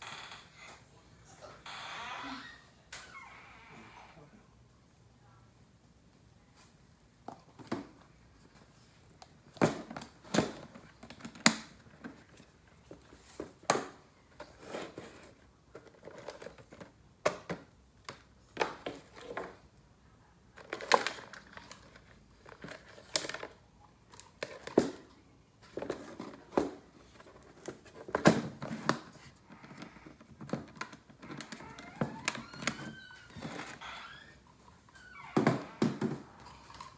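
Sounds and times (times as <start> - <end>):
knocks and clatters of handling: 7.2 - 19.6, 20.6 - 33.8.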